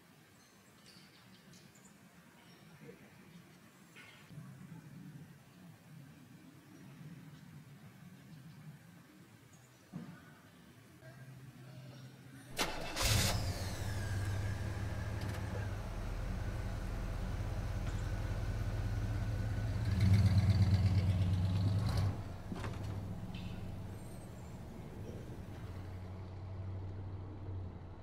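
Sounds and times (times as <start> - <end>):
vehicle engine starting and running: 12.5 - 28.0.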